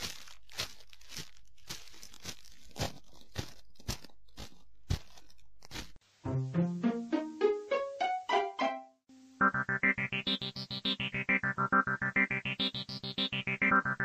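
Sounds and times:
footsteps on leafy dirt path: 0.0s - 6.0s
keyboard music: 6.3s - 14.0s.

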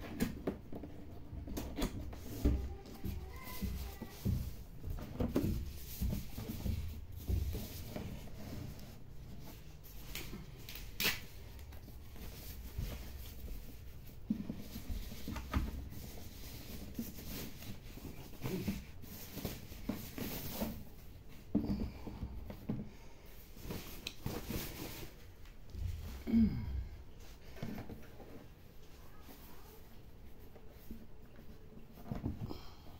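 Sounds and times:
packing sleeve rustling and scraping: 0.1s - 21.0s, 23.5s - 25.4s.

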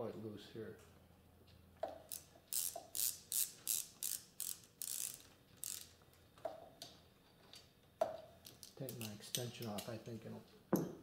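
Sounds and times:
ratchet wrench clicking: 2.0s - 6.0s.

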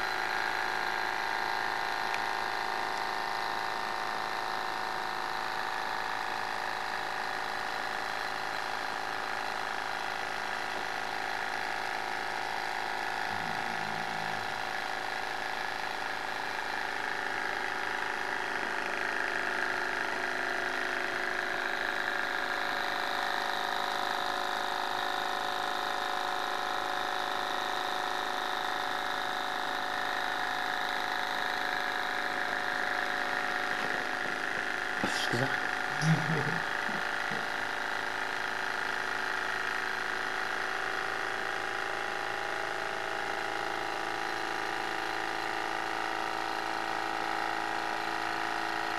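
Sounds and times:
model engine whirring: 0.0s - 48.9s.

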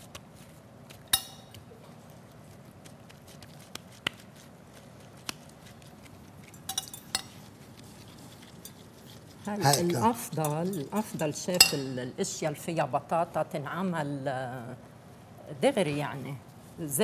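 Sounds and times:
metal spoon clinking bowl: 1.1s - 1.6s, 6.4s - 7.5s, 8.4s - 12.0s
light spoon taps: 10.4s - 12.0s.

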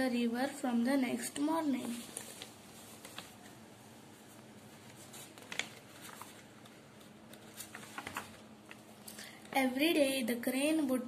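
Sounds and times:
paper rustling: 1.6s - 3.6s, 4.2s - 8.9s.

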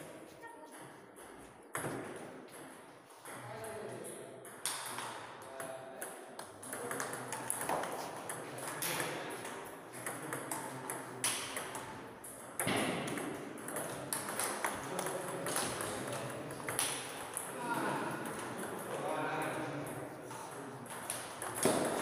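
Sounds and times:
table tennis ball hitting rackets: 0.7s - 3.5s, 4.4s - 5.3s, 6.0s - 17.5s, 19.8s - 22.0s
ball bouncing on table: 0.7s - 3.7s, 6.4s - 17.5s, 19.8s - 22.0s.

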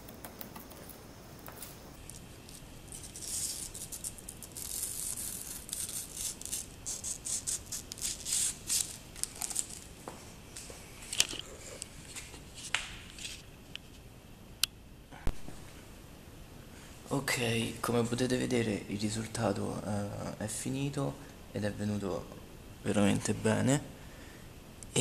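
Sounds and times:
plastic crinkling and rustling: 8.7s - 9.9s.

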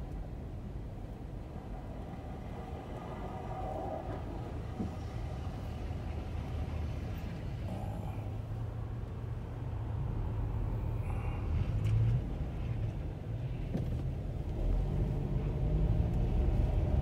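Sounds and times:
bus passing close: 1.3s - 8.9s
car idling rumble: 3.6s - 14.5s.

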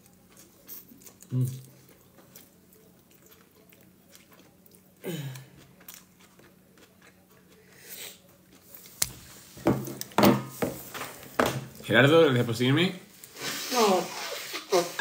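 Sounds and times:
person chewing salad: 0.0s - 10.2s.

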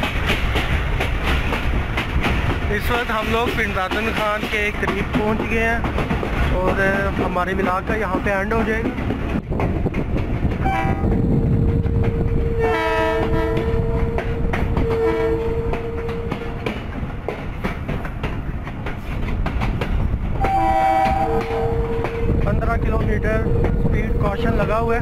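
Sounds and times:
train coaches rumbling on rails: 0.0s - 25.0s
locomotive horn blasts: 10.6s - 11.1s, 12.4s - 16.6s, 20.4s - 22.3s.

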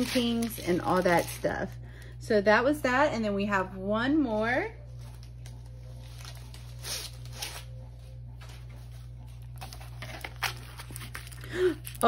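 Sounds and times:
packet rustling and crinkling: 0.0s - 1.7s, 9.4s - 12.0s
low steady hum: 0.0s - 12.0s.

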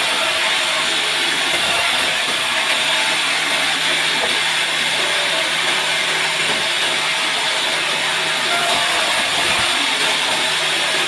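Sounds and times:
band saw cutting log: 0.0s - 11.0s.

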